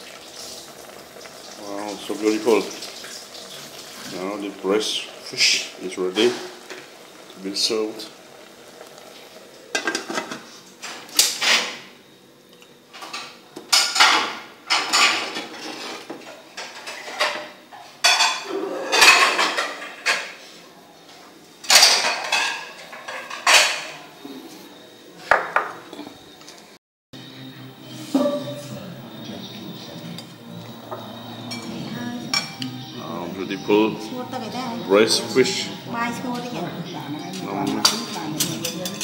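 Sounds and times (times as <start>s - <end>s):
crockery and cutlery clinking: 12.9s - 20.5s, 21.6s - 24.2s, 27.9s - 34.1s, 34.8s - 39.0s.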